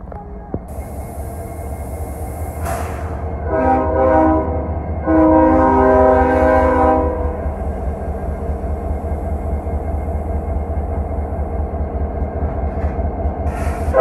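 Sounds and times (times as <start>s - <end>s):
locomotive engine rumble: 0.0s - 14.0s
locomotive air horn: 2.6s - 7.6s.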